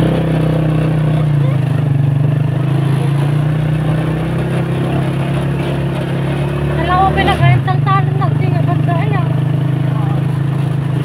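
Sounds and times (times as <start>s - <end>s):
road and wind noise: 0.0s - 11.0s
vehicle engine running: 0.0s - 11.0s.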